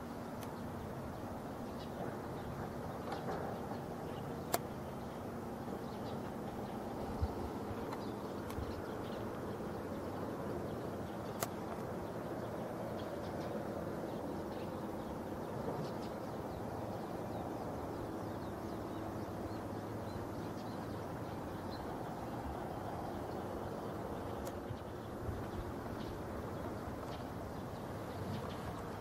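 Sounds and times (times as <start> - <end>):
outdoor background noise: 0.0 - 29.0
sharp click: 4.5 - 4.7, 11.3 - 11.9.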